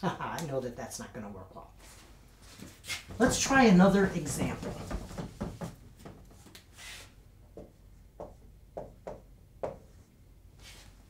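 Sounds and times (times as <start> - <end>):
marker tapping on whiteboard: 7.6 - 9.9.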